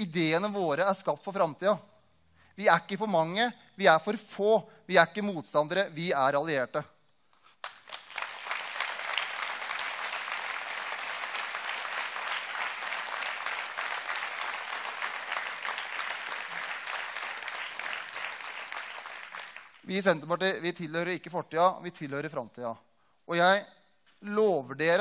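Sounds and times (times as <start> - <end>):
large audience applauding: 7.6 - 20.0.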